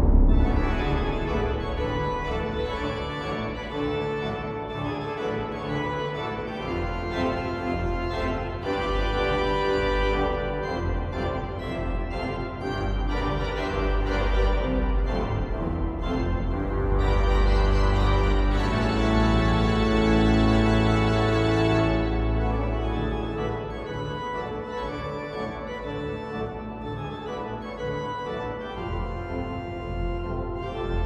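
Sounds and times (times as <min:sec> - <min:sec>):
deep organ pedal bass: 0:00.0 - 0:26.3.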